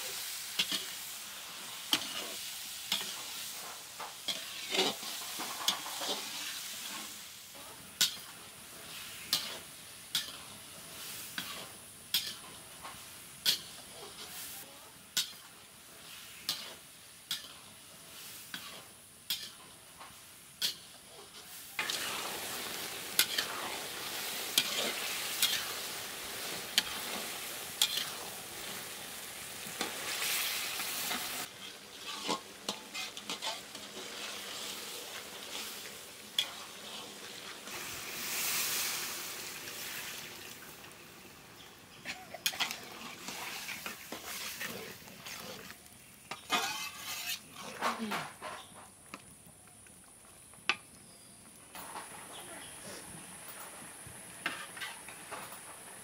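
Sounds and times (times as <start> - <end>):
loud sizzling hiss: 0.0 - 48.2, 48.8 - 56.0
metal spatula scraping pan: 1.9 - 7.1, 20.6 - 28.4, 31.0 - 34.7, 42.0 - 48.8, 54.4 - 55.6.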